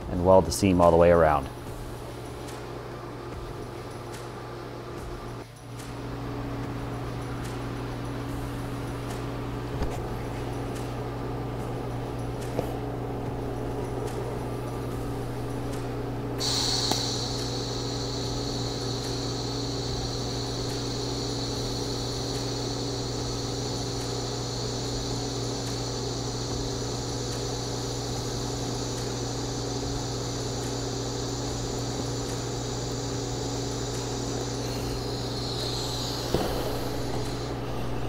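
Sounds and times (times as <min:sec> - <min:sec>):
low electrical hum: 0:00.0 - 0:38.0
welding arc hissing: 0:11.6 - 0:38.0
welding arc crackle: 0:14.9 - 0:38.0.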